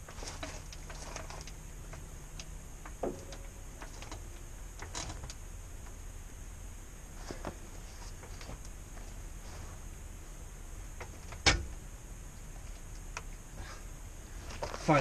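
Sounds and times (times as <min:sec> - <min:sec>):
parts clinking: 0:00.0 - 0:05.4.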